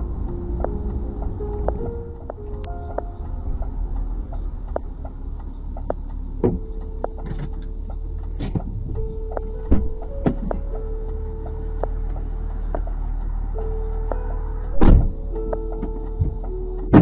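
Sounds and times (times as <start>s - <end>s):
faint held music tones: 0.0s - 17.0s
road and engine rumble: 0.0s - 17.0s
sharp knocks and clicks: 0.5s - 3.7s, 4.3s - 13.2s.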